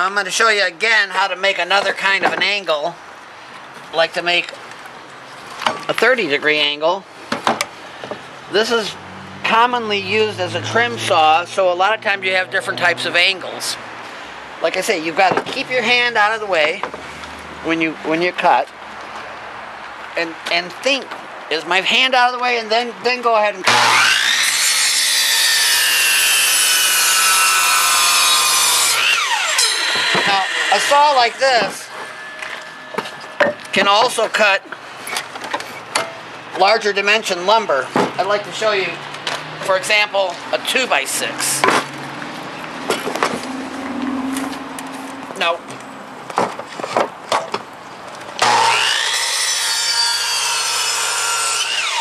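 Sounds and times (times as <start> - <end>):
miter saw cutting wood: 23.6 - 35.0, 48.4 - 52.0
saw blade spinning down: 23.7 - 25.0, 27.0 - 33.8.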